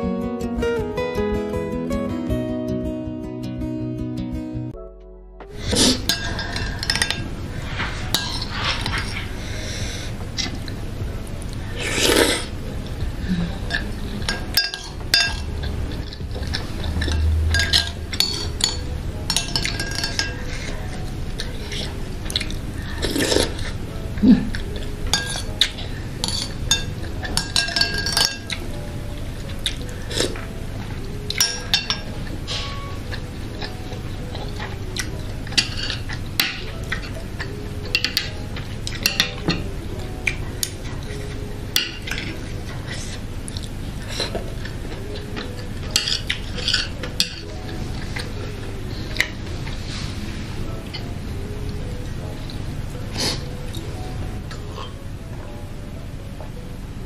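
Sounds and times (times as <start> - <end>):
eating sounds: 11.4 - 18.6, 19.6 - 28.7, 40.2 - 48.5.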